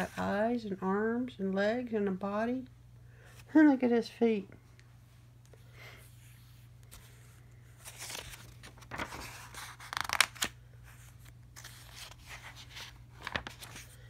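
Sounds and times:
paper pages rustling: 0:06.8 - 0:14.0
page snapping: 0:09.8 - 0:10.5.

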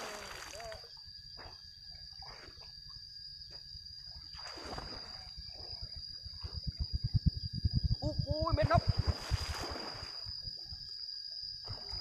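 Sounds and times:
splashing in river water: 0:00.0 - 0:00.9, 0:04.3 - 0:05.3, 0:08.8 - 0:10.2
high-pitched insect drone: 0:00.0 - 0:12.0.

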